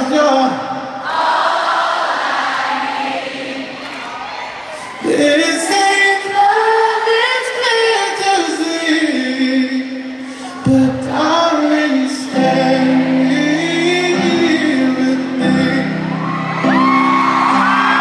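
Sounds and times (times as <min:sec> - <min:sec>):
person singing: 0:04.8 - 0:18.0.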